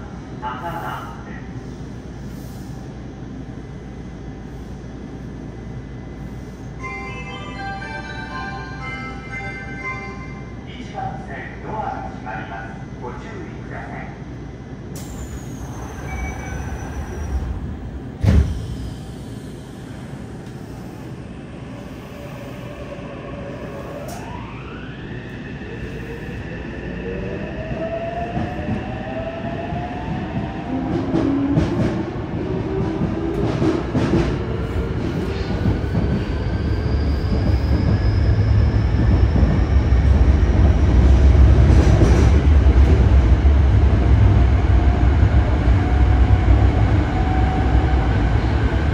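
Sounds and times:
train doors shutting: 14.9 - 20.8, 23.8 - 24.6
train rumble: 25.9 - 48.9.

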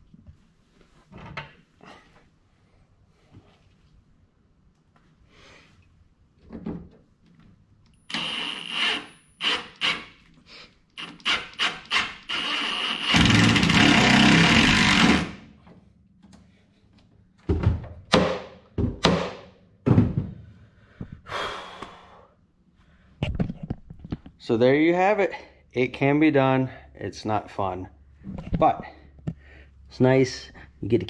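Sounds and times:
cordless drill whining: 8.1 - 10.1, 11.0 - 15.4.

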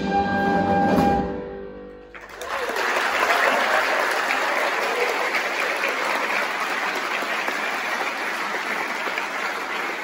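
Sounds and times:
audience applauding: 2.1 - 10.0.

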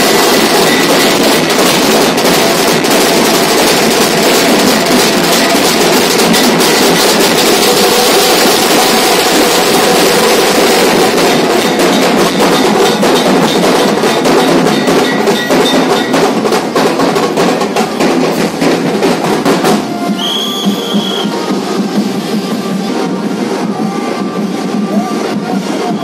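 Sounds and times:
clanking metal percussion: 0.0 - 26.0
fast procession drumming: 0.0 - 26.0
high steady whistle tone: 19.9 - 21.5.

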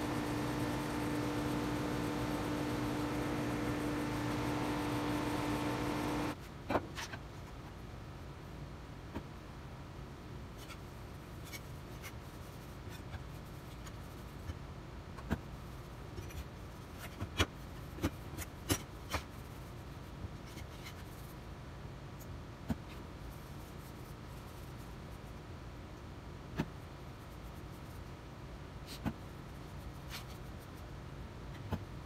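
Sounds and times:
cloth rubbing on metal: 0.0 - 6.4.

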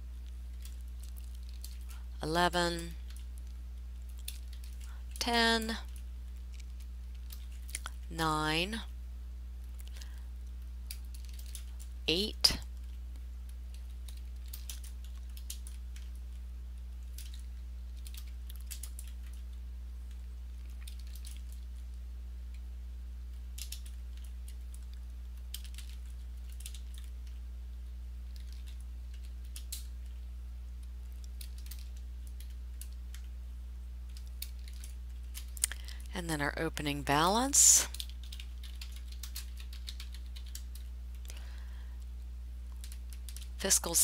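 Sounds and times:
keyboard typing and clicks: 13.7 - 16.1, 23.6 - 24.8, 37.9 - 40.9.

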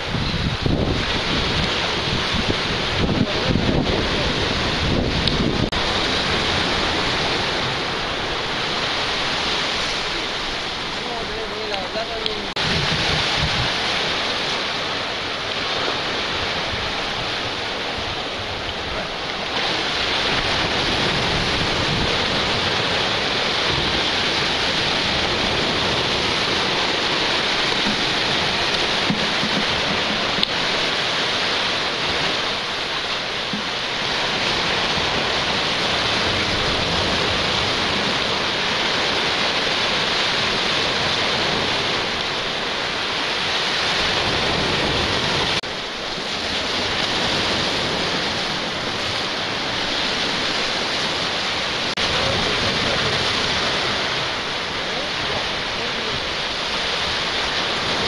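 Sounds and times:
surf breaking against rocks: 0.0 - 58.0.

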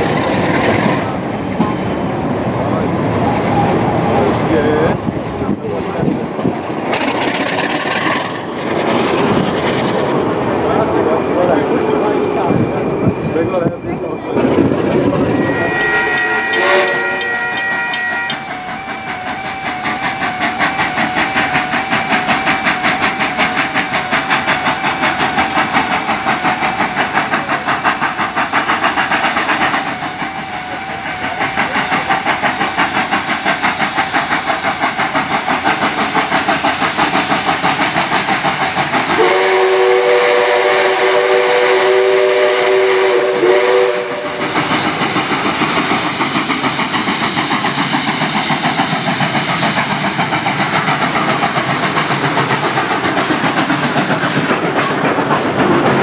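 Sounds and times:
steam locomotive whistle: 15.2 - 27.3, 39.1 - 44.6
level crossing bells ringing: 15.3 - 25.4.

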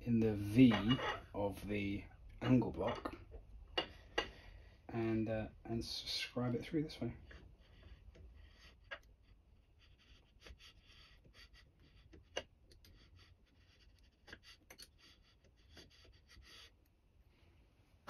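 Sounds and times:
metal ticks and scrapes: 0.2 - 1.7, 2.6 - 4.4, 7.2 - 9.1, 14.2 - 15.9
scriber scratching metal: 0.4 - 1.6, 7.1 - 16.7.

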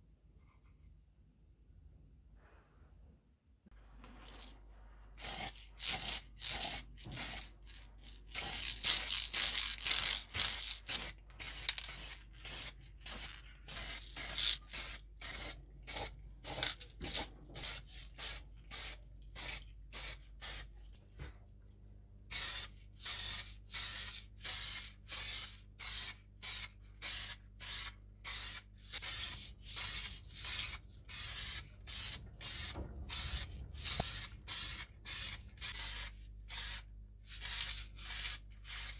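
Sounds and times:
spray can short bursts: 5.2 - 7.5, 8.4 - 20.6, 22.3 - 38.9.

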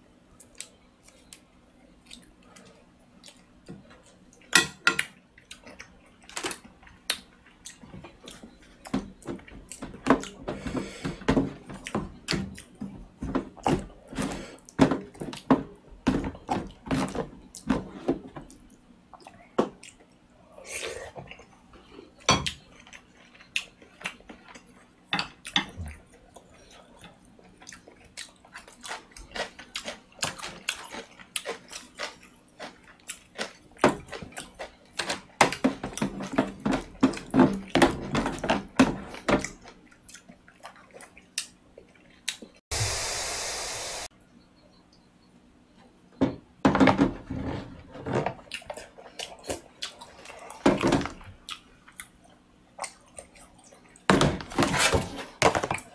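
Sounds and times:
close-up chewing: 5.3 - 11.0, 18.4 - 37.7, 38.6 - 42.6, 48.4 - 54.1.

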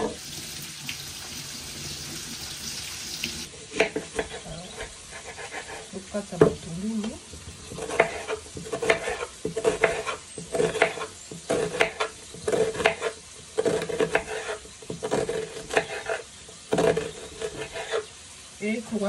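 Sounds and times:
knife slicing onion on wooden board: 3.8 - 5.9, 7.7 - 18.0.

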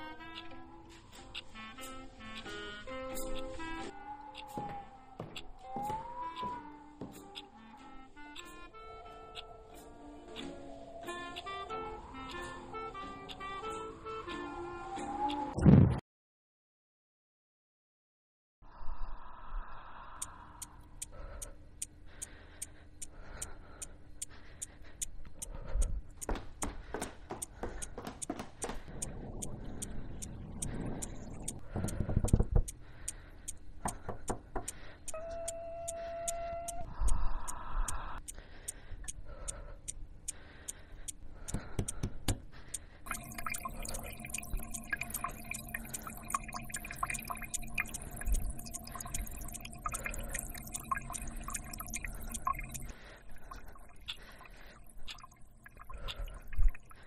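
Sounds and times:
steady ticking: 20.1 - 57.0
water drops dripping: 20.2 - 57.0
steady low tones: 28.9 - 33.8.

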